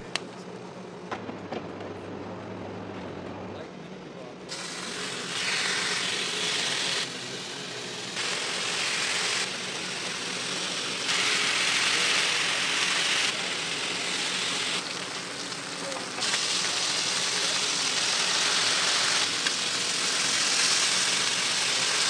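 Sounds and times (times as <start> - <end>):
low hum: 0.0 - 5.3
bacon sizzling on a griddle: 4.5 - 22.0.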